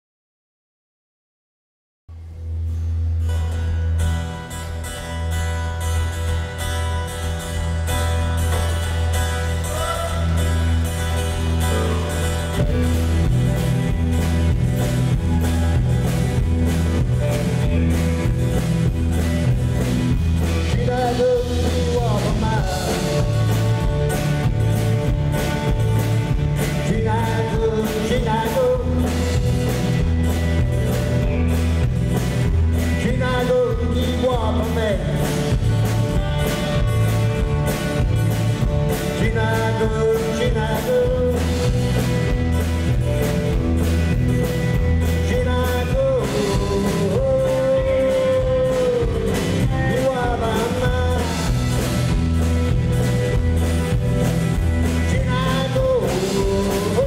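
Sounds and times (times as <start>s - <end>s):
live band playing: 2.5s - 57.0s
man singing: 9.4s - 10.8s, 20.4s - 23.9s, 26.6s - 29.5s, 32.8s - 35.7s, 38.9s - 42.0s, 45.0s - 52.1s, 54.8s - 57.0s.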